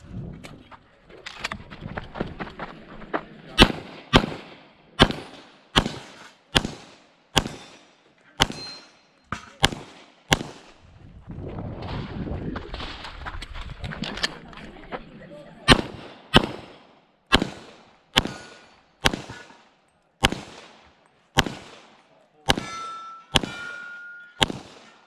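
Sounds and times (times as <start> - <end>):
pistol shots: 3.6 - 8.9, 9.5 - 10.8, 15.7 - 19.6, 20.2 - 25.0.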